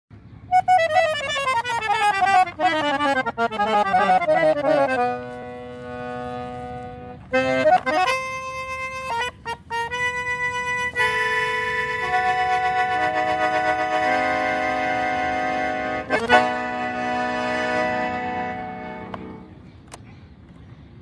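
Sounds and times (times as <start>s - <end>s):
piano accordion playing: 0.4s - 19.6s.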